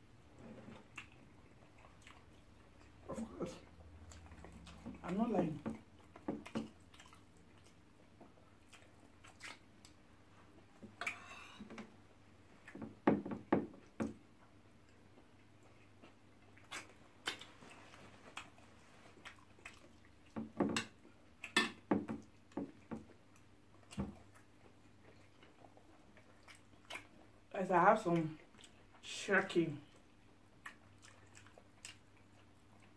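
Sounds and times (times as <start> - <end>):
wet chewing and lip-smacking: 0.8 - 5.1, 5.7 - 11.8, 13.8 - 27.5, 28.1 - 29.0, 29.9 - 32.9.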